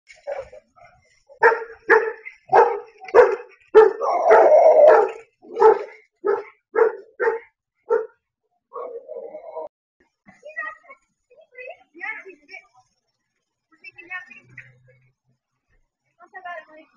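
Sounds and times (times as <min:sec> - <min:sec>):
dog barking rapidly: 0:01.4 - 0:08.2.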